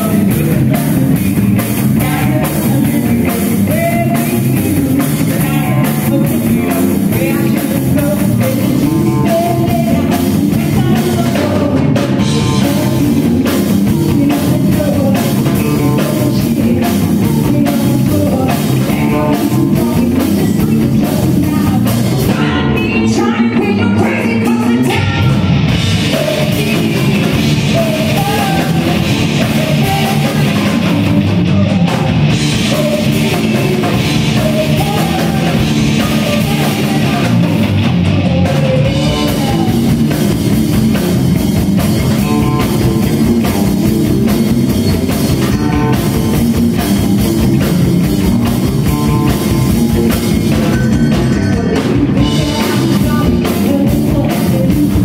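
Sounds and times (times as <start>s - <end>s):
bass guitar: 0.0s - 55.0s
drum kit: 0.0s - 55.0s
electric guitar: 0.0s - 55.0s
woman singing: 1.9s - 25.5s, 26.1s - 40.3s, 51.5s - 55.0s.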